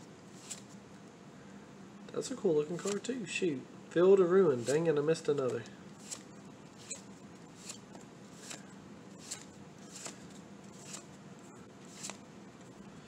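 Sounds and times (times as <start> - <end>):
trading cards flicking: 5.4 - 11.1, 11.9 - 12.2.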